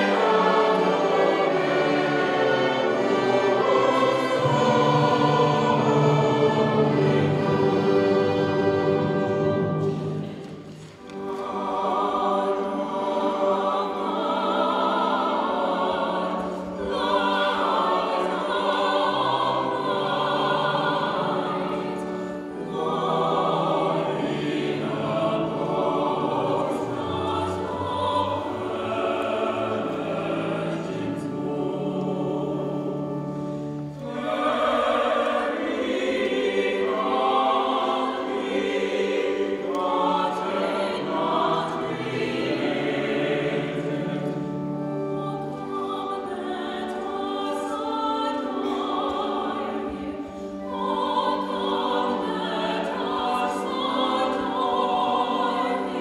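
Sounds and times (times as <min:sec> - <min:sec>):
mixed choir singing: 0:00.0 - 0:56.0
strings and woodwinds orchestra: 0:00.0 - 0:56.0.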